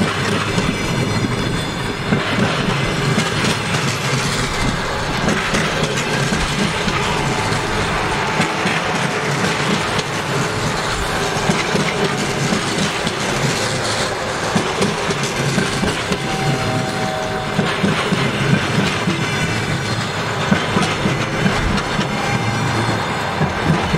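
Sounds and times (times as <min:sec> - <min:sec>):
train passing rumble: 0:00.0 - 0:23.9
wheels clattering over rails: 0:00.0 - 0:23.9.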